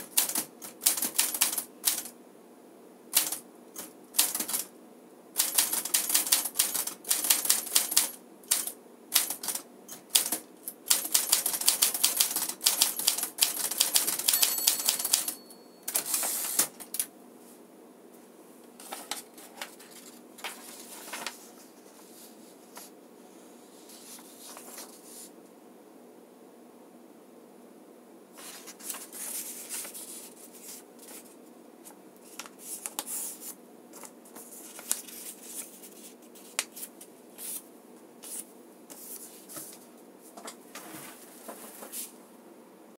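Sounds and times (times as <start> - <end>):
manual typewriter typing: 0.0 - 2.1, 3.2 - 4.7, 5.4 - 17.1
typewriter carriage return: 3.2 - 4.7, 5.4 - 17.1
typewriter margin bell ding: 13.9 - 16.2.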